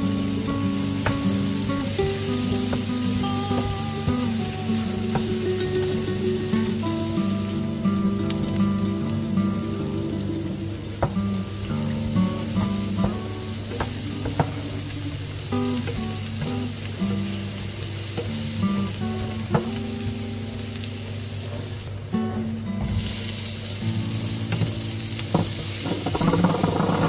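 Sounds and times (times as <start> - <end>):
soft background music: 0.0 - 21.1
onions sizzling in oil: 0.0 - 27.0.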